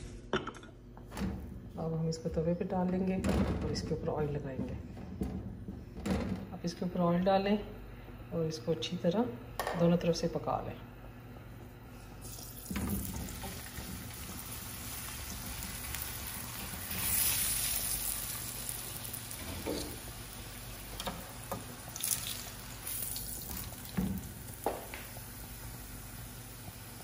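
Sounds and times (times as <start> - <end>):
flatbread sizzling in oil: 12.2 - 27.0.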